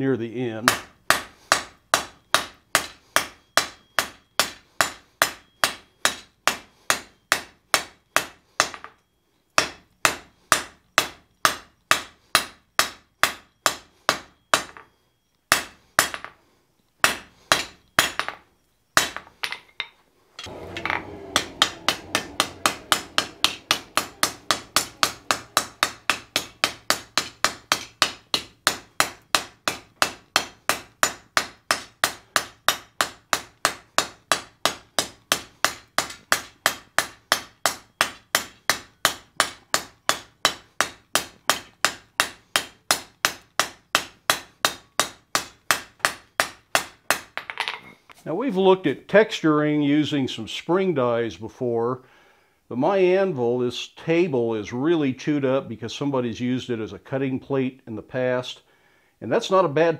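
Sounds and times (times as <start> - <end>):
hammer striking metal on anvil: 0.7 - 14.9, 17.0 - 18.4, 19.0 - 47.8
steady low hum: 20.3 - 32.6.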